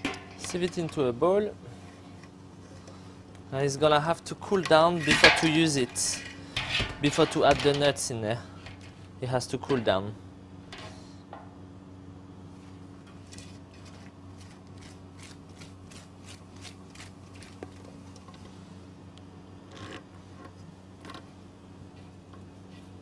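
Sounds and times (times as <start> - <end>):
steady electrical hum: 0.0 - 23.0
steel pot clattering: 4.7 - 7.9.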